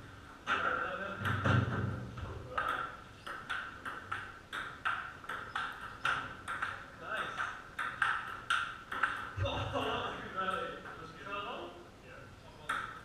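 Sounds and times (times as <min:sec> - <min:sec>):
table tennis ball clicking: 0:02.6 - 0:09.4, 0:12.6 - 0:13.0.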